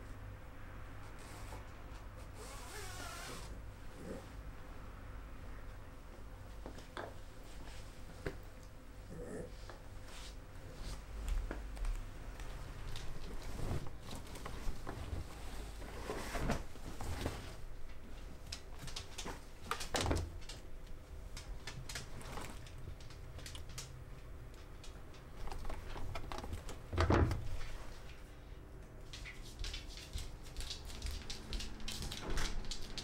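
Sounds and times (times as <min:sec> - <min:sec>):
cloth rustling: 0:12.9 - 0:18.4.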